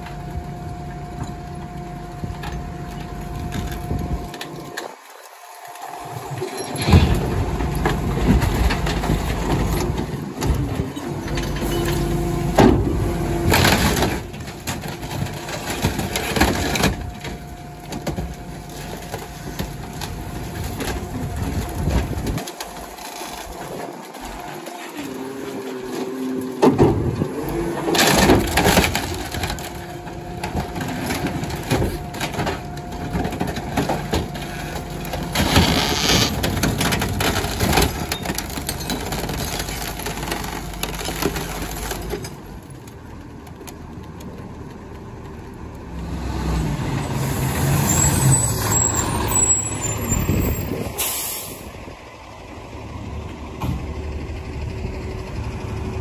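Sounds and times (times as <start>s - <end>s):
truck engine and hydraulics: 0.0s - 56.0s
wood cracking and splintering: 1.2s - 11.7s, 12.5s - 46.6s.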